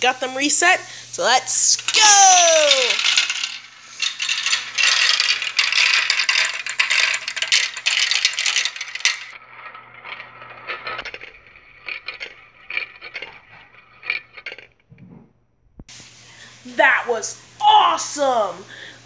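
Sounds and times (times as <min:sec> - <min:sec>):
marbles clattering down plastic track: 0:00.6 - 0:15.0.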